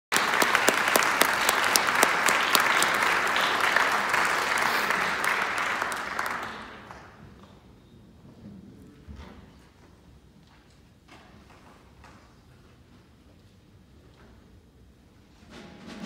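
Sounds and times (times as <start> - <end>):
audience applauding: 0.1 - 7.3.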